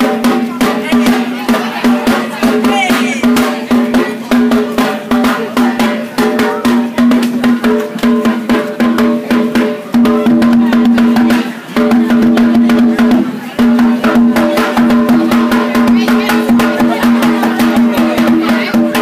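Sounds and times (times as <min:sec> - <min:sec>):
rapid drum strokes: 0:00.0 - 0:19.0.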